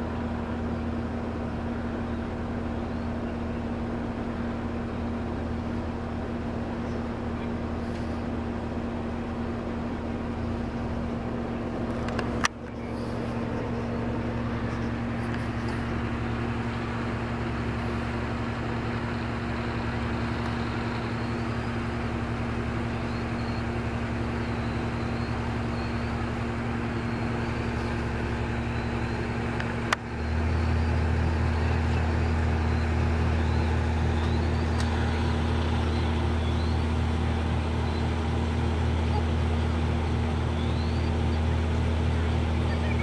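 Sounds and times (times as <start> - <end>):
engine drone: 0.0 - 43.0.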